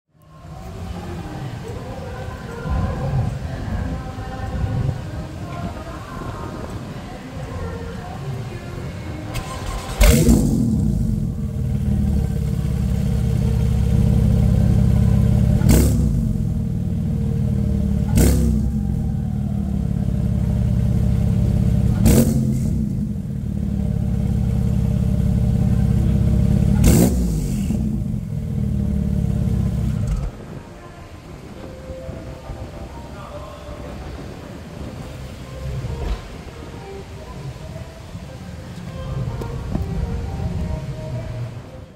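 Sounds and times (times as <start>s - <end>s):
car engine starting and idling: 9.0s - 30.9s
sharp engine cracks: 9.3s - 11.2s, 26.8s - 27.8s.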